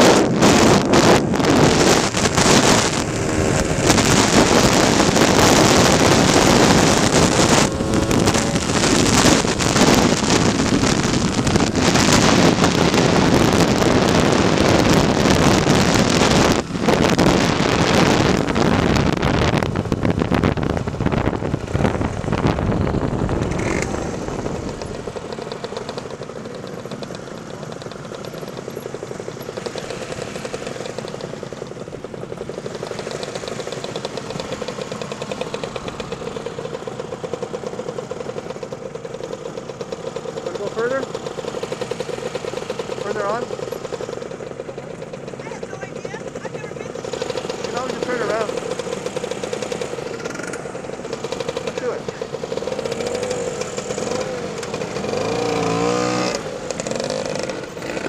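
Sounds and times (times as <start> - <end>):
wind rushing over microphone: 0.0 - 25.2
scooter engine: 0.0 - 58.0.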